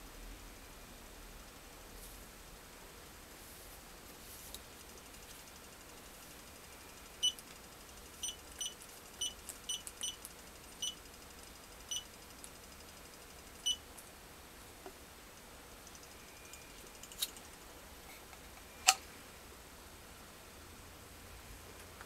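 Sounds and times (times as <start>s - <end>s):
keypad beeps: 7.2s - 7.4s, 8.2s - 10.2s, 10.8s - 11.0s, 11.9s - 12.1s, 13.6s - 13.8s.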